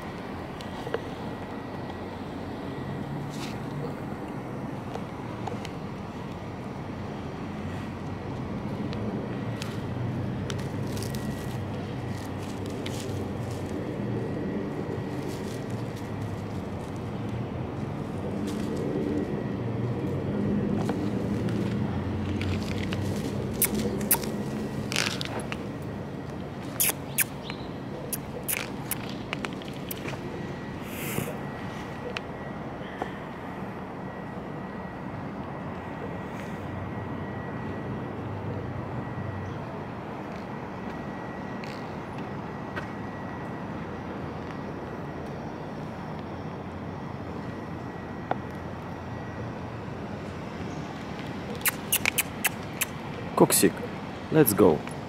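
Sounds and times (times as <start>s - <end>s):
low city hum: 0.0s - 55.0s
dog leash clicks: 51.5s - 52.9s.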